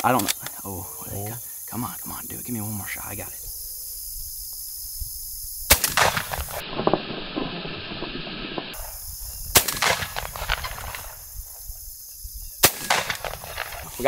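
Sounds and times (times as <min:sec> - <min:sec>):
shotgun shots with echo: 0:05.7 - 0:07.2, 0:09.5 - 0:11.1, 0:12.6 - 0:13.8.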